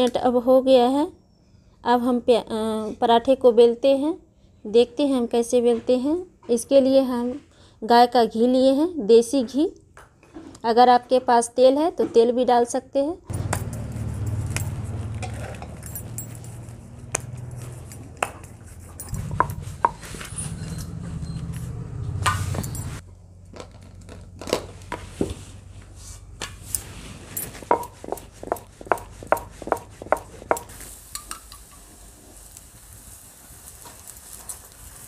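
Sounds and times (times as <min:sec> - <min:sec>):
metal spoon scraping griddle: 0:13.7 - 0:21.7.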